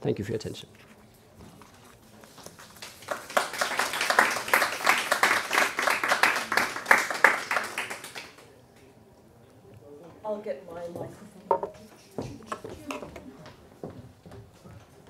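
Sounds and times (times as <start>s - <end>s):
small audience clapping: 2.2s - 8.9s.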